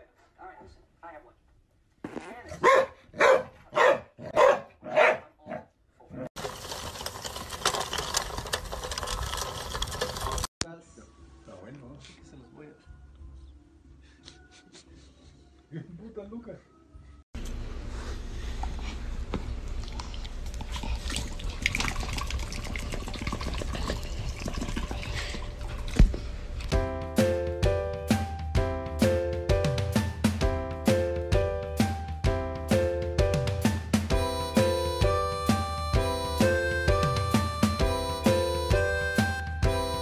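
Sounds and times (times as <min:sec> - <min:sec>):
dog barking: 0:02.5 - 0:05.7
toy cart wheels rolling on gravel: 0:06.4 - 0:10.5.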